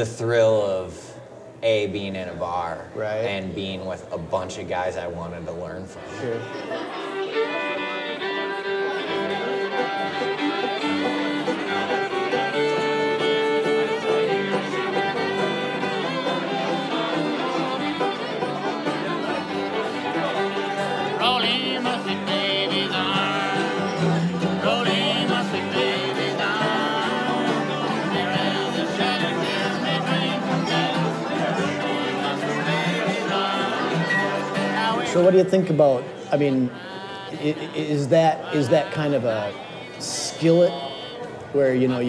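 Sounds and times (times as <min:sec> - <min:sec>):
banjo picking: 0:06.4 - 0:40.8
fiddle playing lead: 0:06.4 - 0:41.0
guitar strumming: 0:06.8 - 0:39.3.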